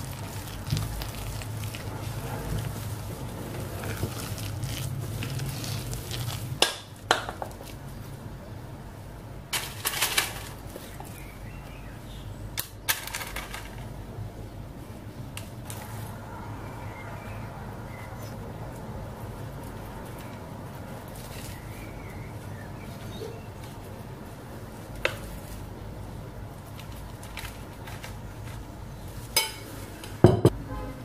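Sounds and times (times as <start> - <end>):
spoon stirring thick batter: 0.0 - 6.6.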